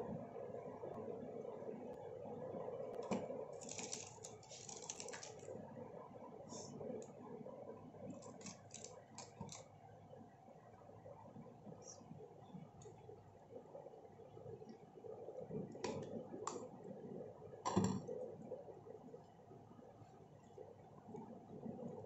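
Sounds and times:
low steady hum: 0.0 - 22.0
soft squishes: 3.0 - 5.6, 8.0 - 9.8.

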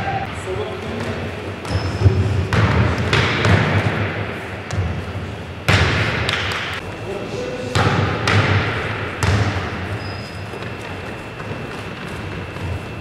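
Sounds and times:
basketball bouncing on hardwood: 9.2 - 9.7.

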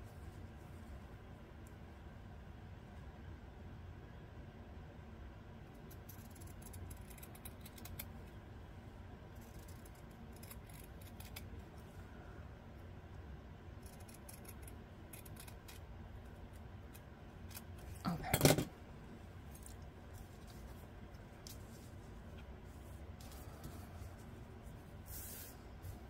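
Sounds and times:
scissors snipping fabric: 6.0 - 8.1, 9.4 - 11.5, 13.8 - 15.8.

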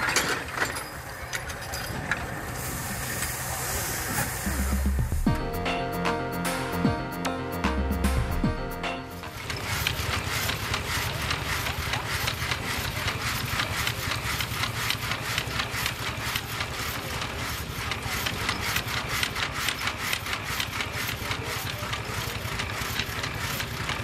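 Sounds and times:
machinery clattering: 8.0 - 24.0.

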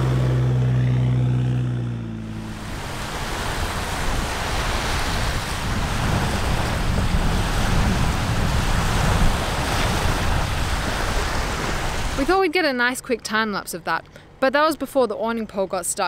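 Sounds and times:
surf breaking on beach: 2.3 - 12.3
wind buffeting microphone: 2.4 - 12.4.

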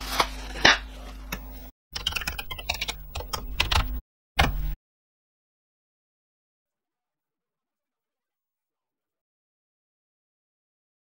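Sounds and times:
keyboard key clicks: 2.0 - 4.8.

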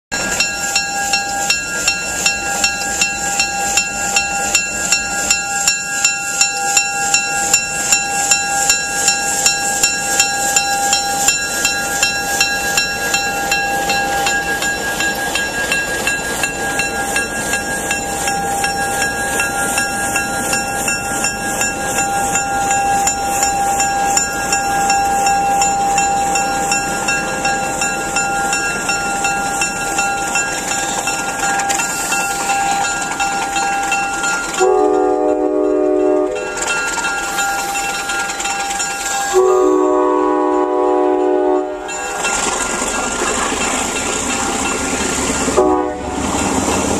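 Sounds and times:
diesel train rolling past: 0.1 - 46.9
wheels clicking over rail joints: 0.2 - 39.5
locomotive air horn: 34.6 - 36.5, 39.3 - 42.2, 45.6 - 46.3.

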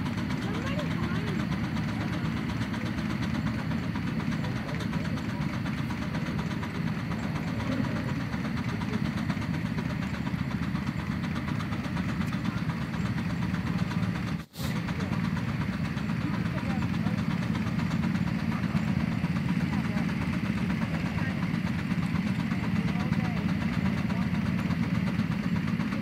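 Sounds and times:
miniature steam engine running: 0.0 - 26.0.

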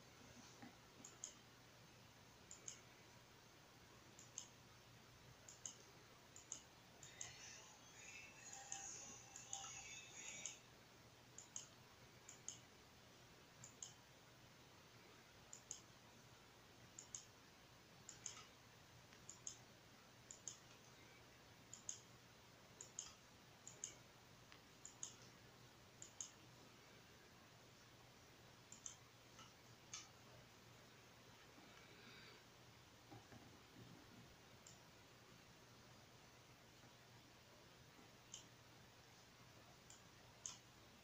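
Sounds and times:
low steady hum: 0.0 - 41.0
computer mouse clicks: 0.6 - 1.4, 2.5 - 3.0, 4.1 - 4.6, 5.4 - 7.5, 8.5 - 10.6, 11.4 - 12.7, 13.6 - 14.0, 15.5 - 15.9, 16.9 - 17.4, 18.0 - 19.7, 20.3 - 20.9, 21.7 - 22.2, 22.8 - 25.4, 26.0 - 26.4, 28.7 - 30.2, 33.0 - 34.9, 38.0 - 38.6, 39.8 - 40.7.

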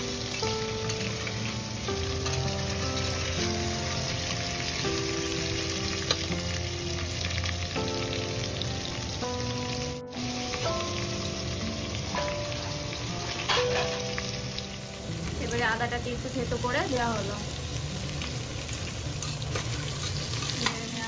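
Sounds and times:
background music: 0.0 - 21.0
vegetables sizzling in oil: 0.0 - 21.0.

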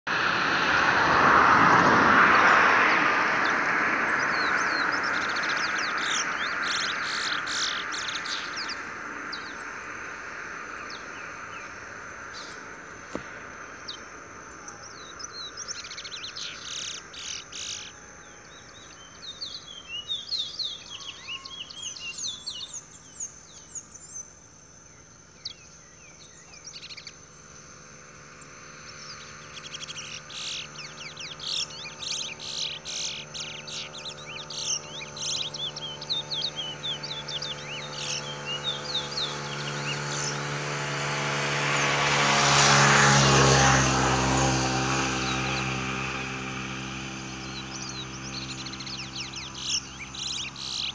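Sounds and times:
loud rushing noise: 0.1 - 7.1
finches chirping and trilling: 3.4 - 13.2, 13.8 - 24.4, 25.4 - 41.1, 42.7 - 50.9.

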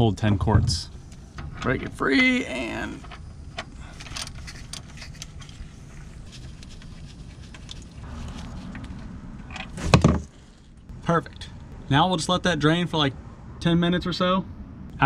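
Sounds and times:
drain plug clicks and scrapes: 3.0 - 8.1.

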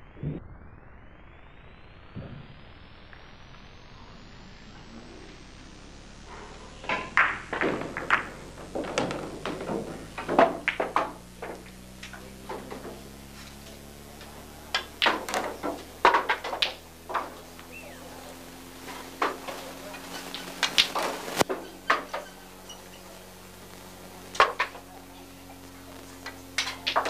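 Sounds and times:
low steady hum: 0.0 - 27.0
pool balls clacking: 6.4 - 27.0.

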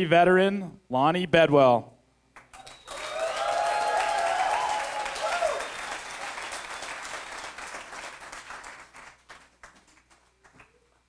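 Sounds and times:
audience applause: 2.6 - 10.8.

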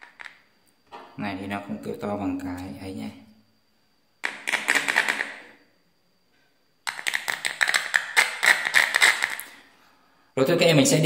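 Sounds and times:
faint high whine: 0.0 - 11.0.

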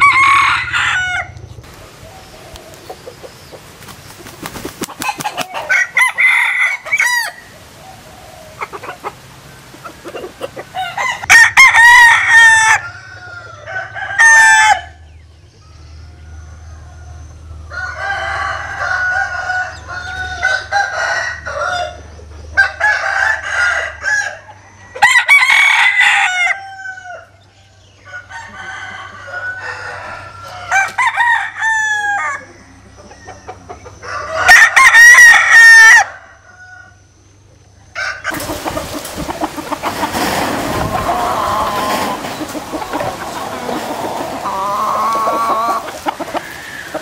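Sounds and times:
roosters crowing: 0.0 - 15.2, 15.9 - 47.0
background hiss: 1.6 - 11.2, 38.3 - 47.0.

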